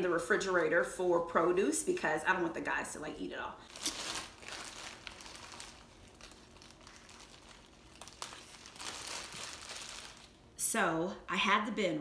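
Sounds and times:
plastic bags crinkling: 0:03.6 - 0:10.4.

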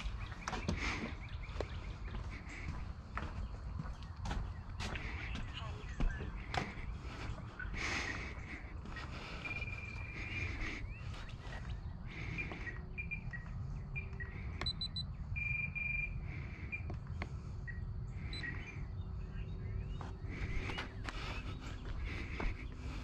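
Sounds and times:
birds chirping: 0:00.0 - 0:23.0
bird whistles: 0:12.9 - 0:13.4, 0:14.0 - 0:16.9.

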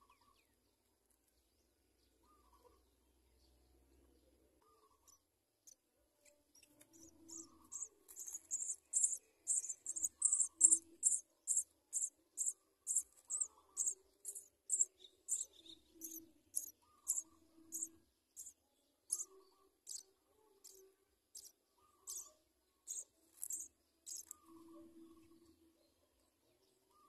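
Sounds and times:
nestling birds cheeping: 0:04.6 - 0:05.8, 0:06.5 - 0:25.4.

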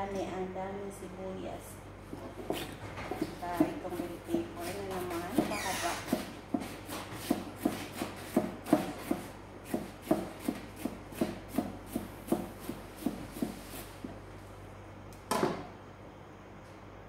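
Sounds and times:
knife chopping on plastic board: 0:02.1 - 0:13.8.

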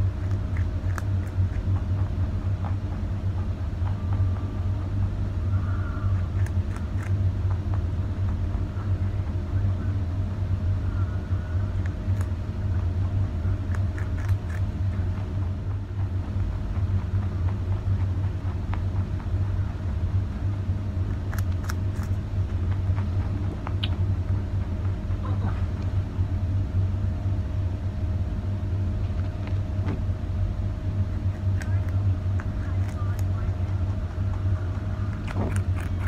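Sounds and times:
low mechanical hum: 0:00.0 - 0:36.0
rabbit crunching carrot: 0:00.0 - 0:36.0.

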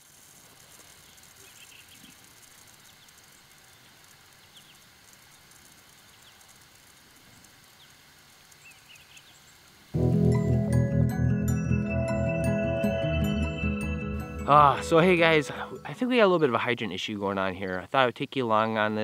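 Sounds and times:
soft steady hiss: 0:00.0 - 0:10.0, 0:14.5 - 0:19.0.

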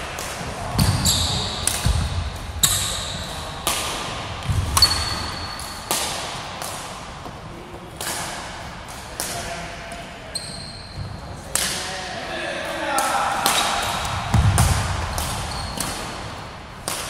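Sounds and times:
racket hitting shuttlecock: 0:00.1 - 0:09.5, 0:12.8 - 0:17.0.

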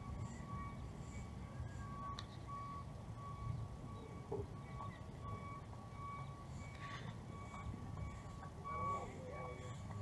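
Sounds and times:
high electronic beeps: 0:00.0 - 0:09.8.

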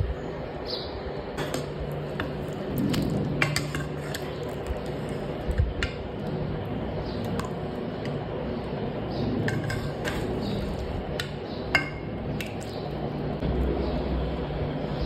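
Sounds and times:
metal ladle clinking on pot: 0:11.2 - 0:12.6
low rumble: 0:13.1 - 0:15.0.

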